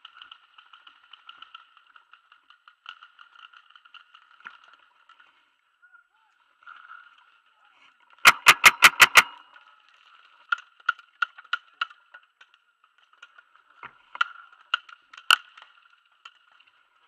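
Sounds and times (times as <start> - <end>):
paintball marker shots: 8.3 - 9.4.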